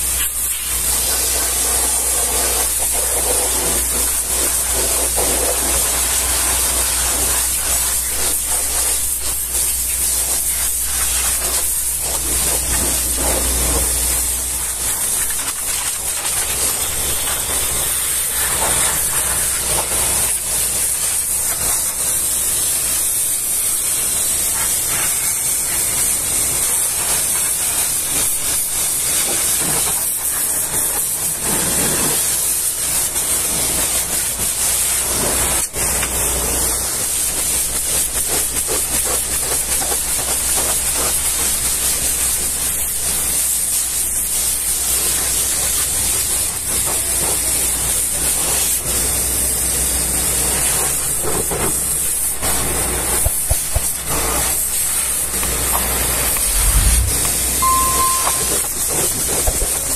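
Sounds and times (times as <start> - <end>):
pressure washer blasting water: 0.0 - 59.9
low hum: 56.3 - 58.7.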